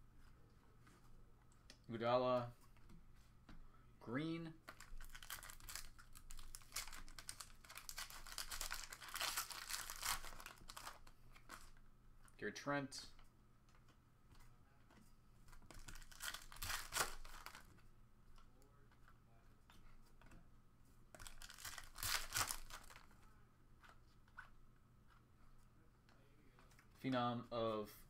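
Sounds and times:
cards rustling: 4.6 - 12.4, 13.2 - 20.5, 21.1 - 27.2
foil wrapper crinkling and tearing: 4.7 - 11.7, 15.7 - 17.7, 21.2 - 23.1.

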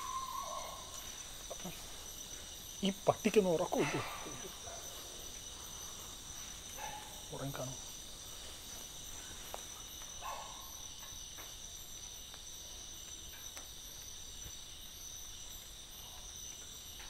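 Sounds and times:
crickets chirping: 0.0 - 17.0
faint ticks and taps: 8.7 - 17.0.

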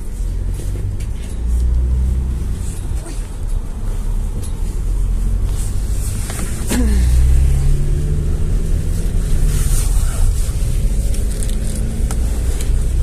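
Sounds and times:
minibus engine and road rumble: 0.0 - 13.0.

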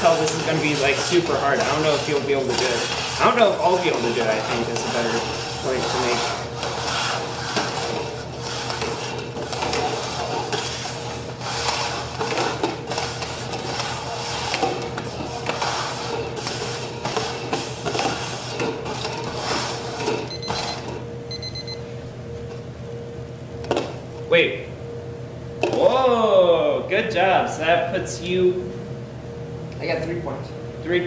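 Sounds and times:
plastic cups scraping on wood: 0.0 - 20.3
electronic timer beeps: 20.3 - 21.9.

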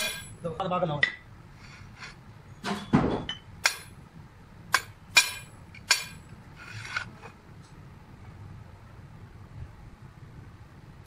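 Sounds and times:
steel tool clinking on steel: 4.8 - 6.2.

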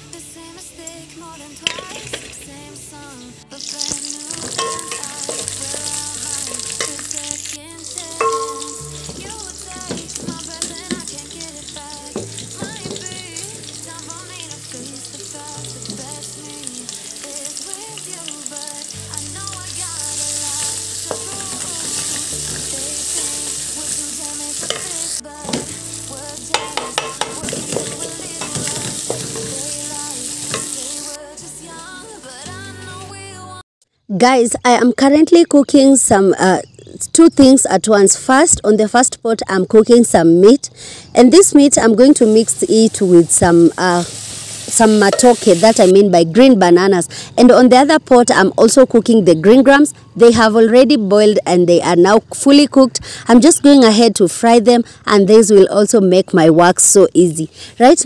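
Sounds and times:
onions sizzling in hot oil: 3.6 - 31.2, 42.0 - 46.0.

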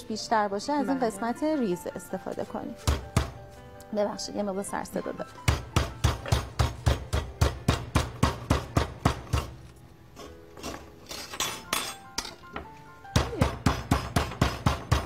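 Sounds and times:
meat mallet pounding chicken: 2.8 - 3.4, 5.4 - 9.6, 13.1 - 15.0.

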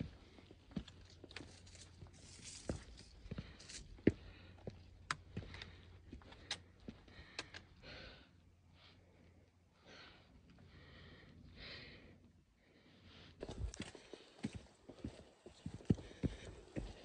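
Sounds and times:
person breathing hard: 3.3 - 14.6, 15.8 - 17.0.

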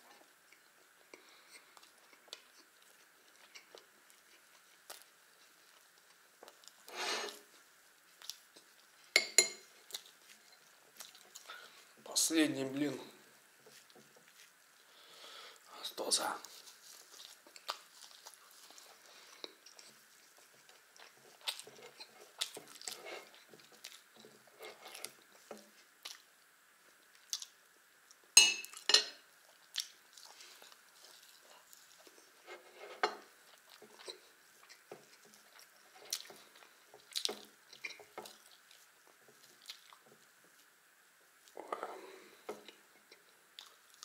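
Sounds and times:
faint steady hum: 0.0 - 44.0
chewing food close-up: 0.1 - 12.0, 16.4 - 44.0
metal spoon clinking on plate: 9.2 - 9.6, 28.4 - 29.2.

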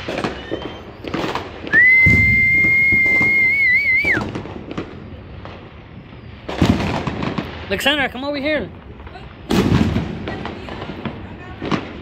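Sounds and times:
firecracker pops: 0.0 - 8.0, 8.8 - 12.0
loud high warbling whistle: 0.2 - 1.1, 1.7 - 4.2.

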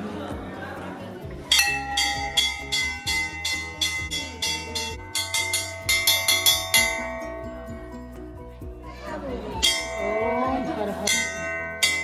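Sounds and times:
bell rung rapidly: 1.5 - 7.7, 9.6 - 12.0.

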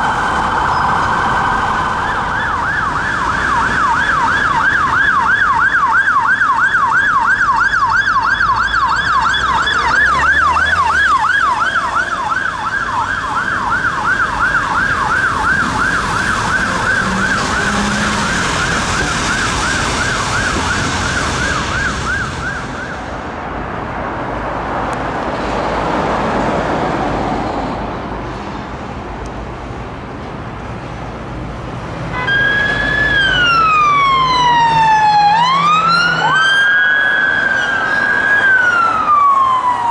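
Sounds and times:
motorcycle siren yelping: 0.0 - 23.0, 32.2 - 39.9
police siren wailing: 0.0 - 23.2, 32.1 - 39.9
traffic noise: 0.0 - 39.9.

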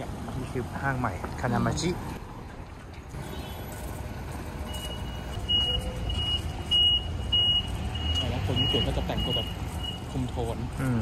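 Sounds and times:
road traffic rumbling: 0.0 - 11.0
electronic warning beeper: 4.7 - 10.1.

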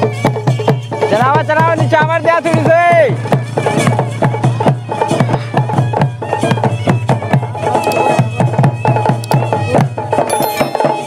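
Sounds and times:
hand-beaten drums: 0.0 - 11.0
reed-pipe melody: 10.2 - 11.0.

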